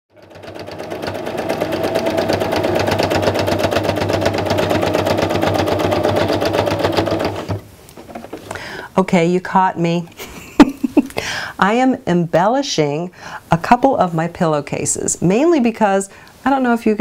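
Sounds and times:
electric sewing machine stitching: 0.1s - 7.7s.

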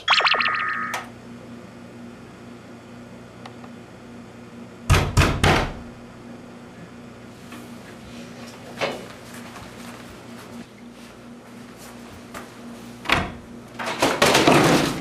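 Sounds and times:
knocks on a door: 4.9s - 5.8s.

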